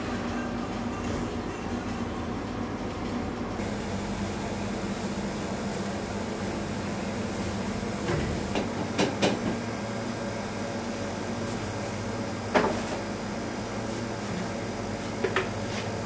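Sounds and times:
hum of bakery machinery: 0.0s - 16.0s.

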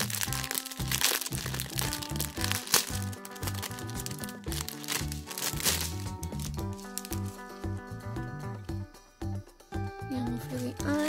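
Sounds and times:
plastic bags crinkling: 0.0s - 7.6s
background music: 0.0s - 11.0s.

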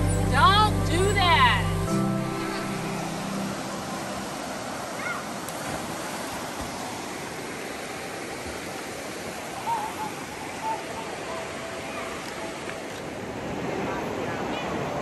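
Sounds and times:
steady rushing noise: 2.2s - 9.4s
short wavering calls: 9.6s - 12.5s.

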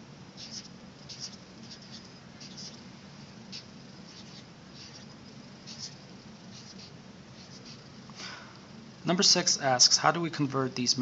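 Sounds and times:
faint low hum: 0.0s - 11.0s
marker scratching on paper: 0.4s - 7.9s.

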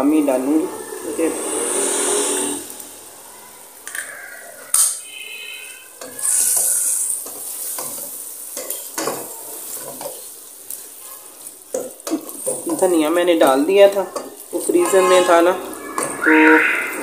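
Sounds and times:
food sizzling in a pot: 0.0s - 17.0s
spatula scraping a pot: 5.1s - 10.9s, 14.1s - 16.6s.

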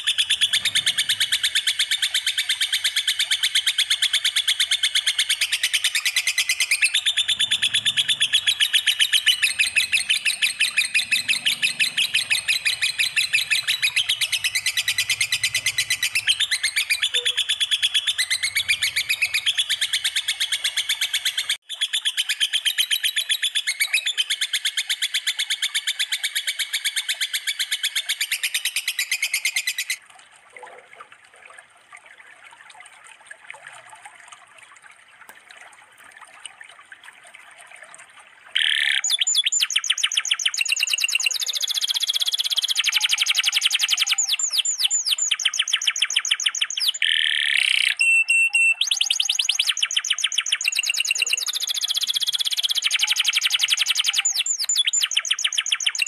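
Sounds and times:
faint bird calls: 0.0s - 21.6s
bird trilling: 0.0s - 24.4s, 38.6s - 56.0s.

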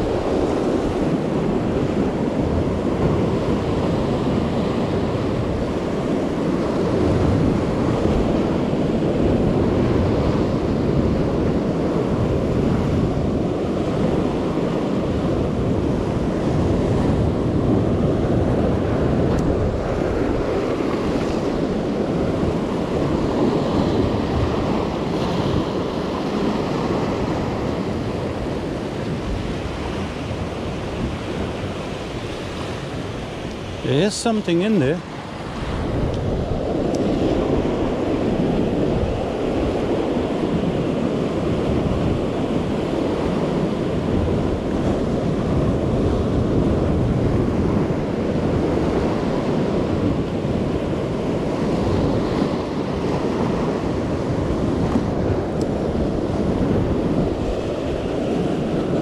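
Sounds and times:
ocean surf breaking on rocks: 0.0s - 59.0s
wind on microphone: 0.0s - 59.0s.

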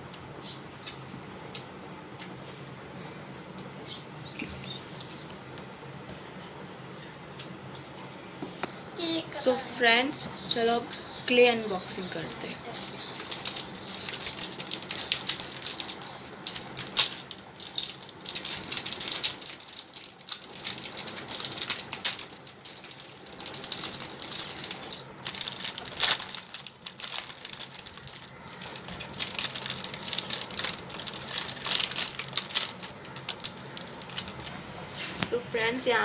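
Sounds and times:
plastic packaging crinkling: 11.9s - 34.6s.

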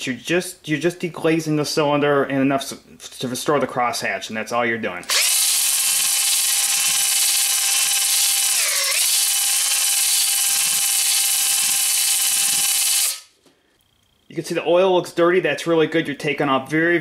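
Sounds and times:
cordless drill motor whine: 5.1s - 13.3s.

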